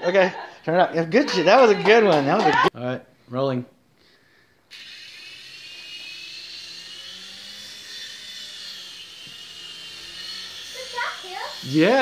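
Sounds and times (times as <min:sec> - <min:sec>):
toy helicopter rotor whirring: 0:04.7 - 0:12.0.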